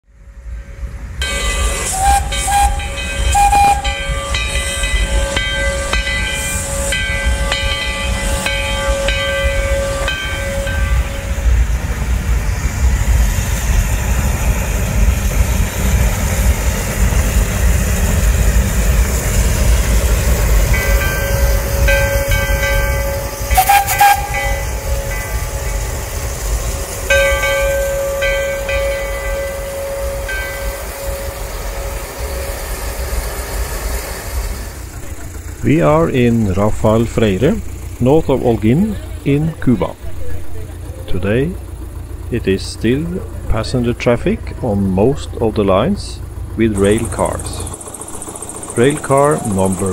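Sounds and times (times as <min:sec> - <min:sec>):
regular locomotive beats: 0:00.0 - 0:49.9
steam locomotive moving slowly: 0:00.0 - 0:49.9
steady whistle-like tone: 0:01.2 - 0:07.6, 0:21.3 - 0:26.0, 0:27.4 - 0:33.3, 0:46.8 - 0:49.9
steam hiss: 0:01.2 - 0:35.6.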